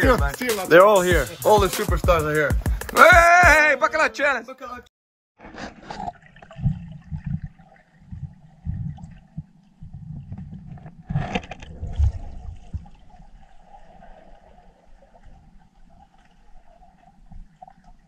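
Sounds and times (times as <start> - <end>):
rush of bubbling: 5.4 - 18.0
underwater gurgling and sloshing: 5.4 - 18.0
low thumps: 6.5 - 13.0.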